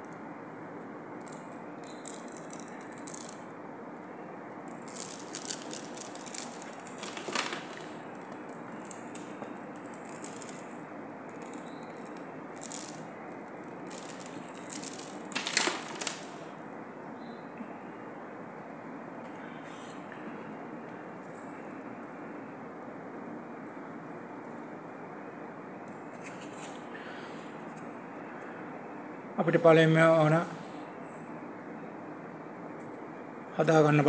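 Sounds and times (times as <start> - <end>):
background hiss: 0.0 - 34.0
beads clicking and rattling: 1.2 - 3.5, 4.7 - 16.5.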